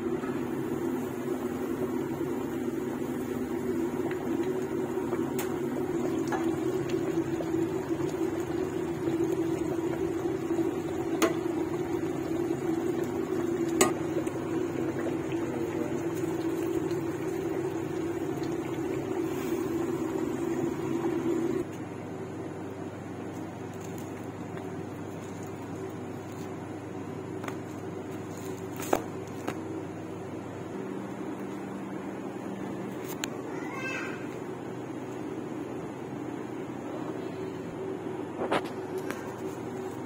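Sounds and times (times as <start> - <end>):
stew boiling hard: 0.4 - 21.7, 23.0 - 30.5.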